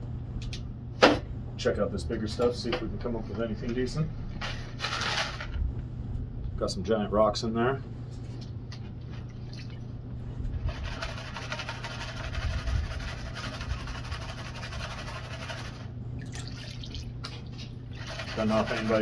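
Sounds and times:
muddy water sloshing: 9.1 - 10.0, 16.2 - 19.0.

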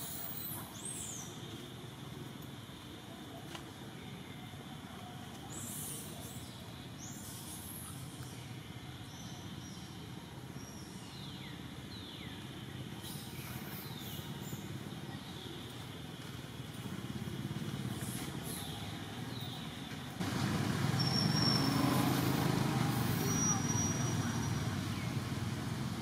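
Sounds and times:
low rumble of distant traffic: 0.0 - 26.0
high falling calls: 20.2 - 24.6.

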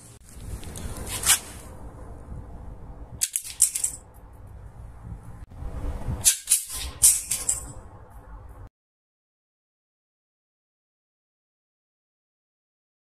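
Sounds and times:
wooden slingshot clacks: 3.2 - 4.5, 6.2 - 7.8.

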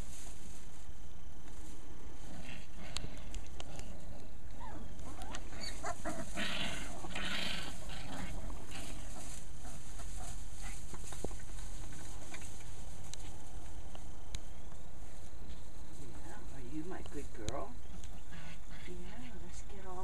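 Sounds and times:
straw rustling: 0.0 - 20.0
puppies whimpering and grunting: 4.0 - 11.2.

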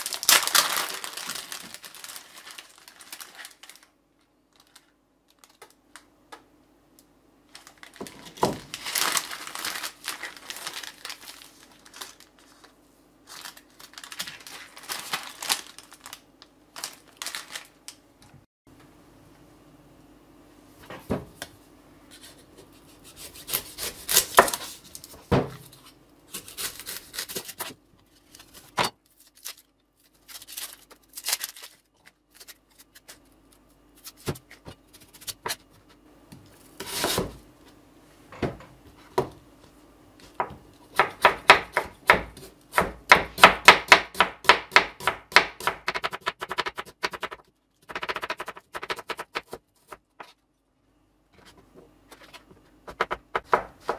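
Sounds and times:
onion skin rustling: 0.0 - 3.9, 7.6 - 16.2, 22.1 - 34.3.

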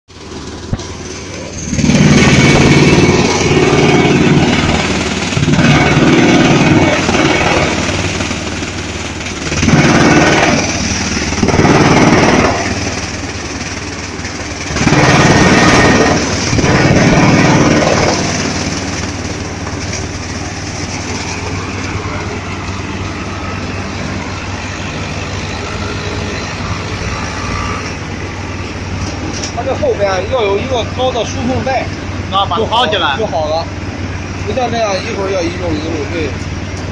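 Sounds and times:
drum chipper grinding plastic: 0.1 - 24.4.

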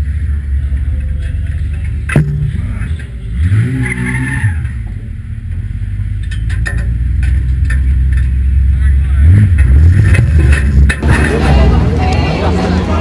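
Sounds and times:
car engine running hard: 0.0 - 13.0
clicks and rattles: 6.2 - 8.4.

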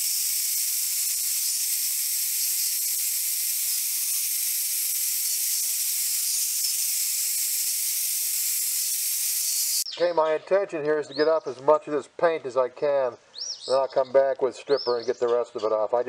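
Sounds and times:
wire wheel grinder scouring metal: 0.0 - 9.9.

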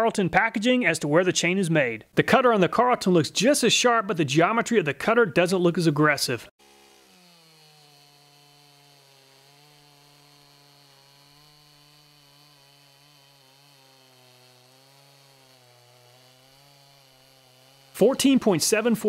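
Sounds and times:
faint chainsaw cutting wood: 6.6 - 19.0.

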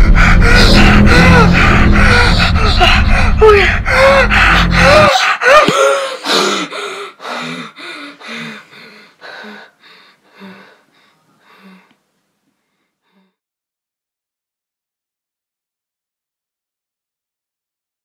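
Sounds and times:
loud low rumble: 0.0 - 5.2
boy panting: 0.0 - 12.0.

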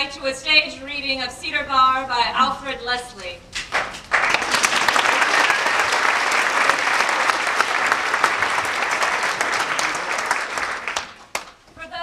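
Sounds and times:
audience applauding: 3.7 - 11.6.

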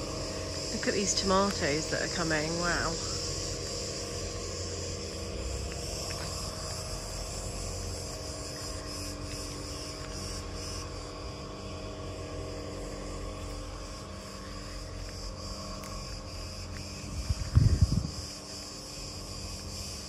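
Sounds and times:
insects chirring: 0.0 - 20.0.

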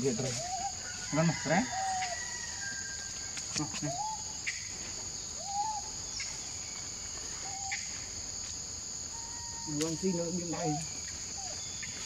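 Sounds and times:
insects droning: 0.0 - 12.0
animal calls: 5.4 - 6.0, 9.1 - 12.0.

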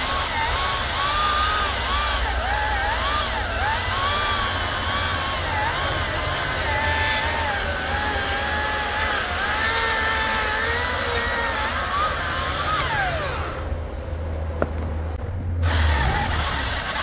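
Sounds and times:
battery chainsaw cutting log: 0.0 - 13.8, 15.6 - 17.0
steady low hum: 11.4 - 17.0.

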